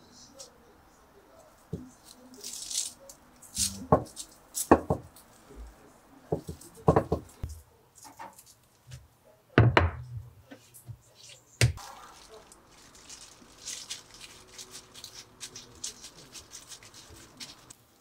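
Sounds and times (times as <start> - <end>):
plastic glove crinkling: 11.8 - 17.8.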